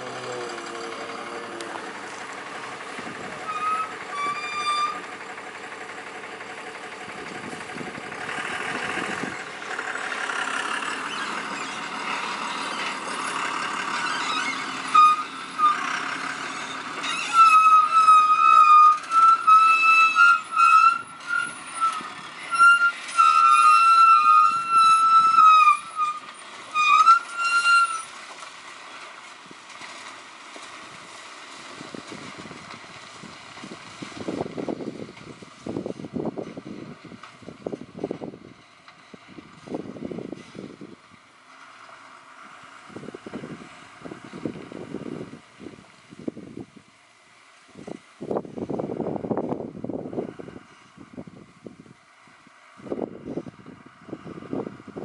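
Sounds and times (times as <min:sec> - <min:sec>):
truck on dirt road: 0:00.0 - 0:55.0
truck horn honks: 0:14.3 - 0:26.2.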